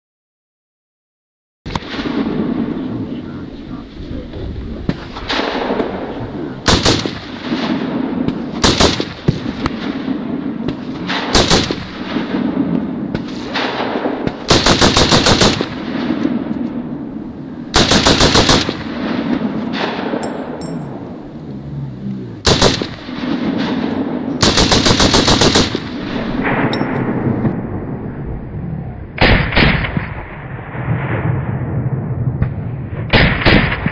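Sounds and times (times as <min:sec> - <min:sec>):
gunshot echo: 0:01.7 - 0:03.4, 0:04.3 - 0:21.2, 0:22.2 - 0:27.9, 0:29.2 - 0:33.9
automatic rifle bursts: 0:11.1 - 0:11.8, 0:14.5 - 0:15.7, 0:17.7 - 0:18.8, 0:22.4 - 0:23.0, 0:24.4 - 0:25.8.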